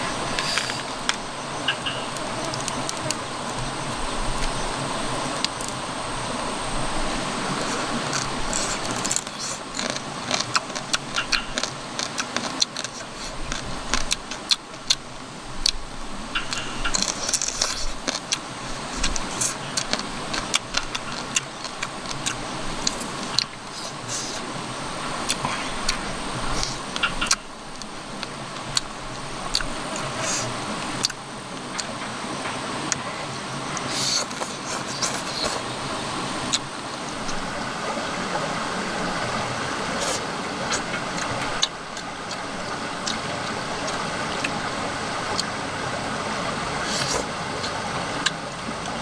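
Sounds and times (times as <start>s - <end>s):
background hiss: 0.0s - 49.0s
crunching and clicking chewing: 0.3s - 5.8s, 7.5s - 24.5s, 25.2s - 45.7s, 46.8s - 49.0s
crab shell cracking: 7.6s - 15.0s, 16.4s - 24.4s.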